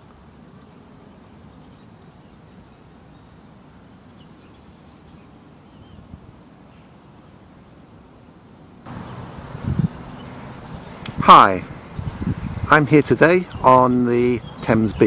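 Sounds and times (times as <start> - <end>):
low outdoor background noise: 0.0 - 15.0
small birds chirping: 8.9 - 15.0.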